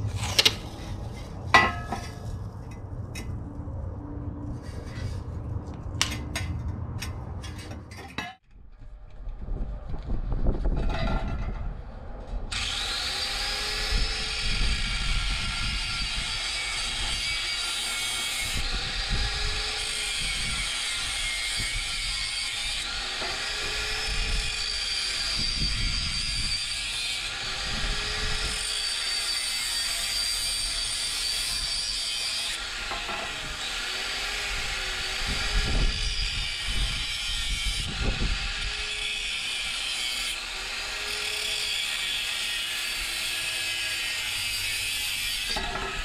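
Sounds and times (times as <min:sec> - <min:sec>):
angle grinder cutting steel pipe: 0:12.5 - 0:46.0.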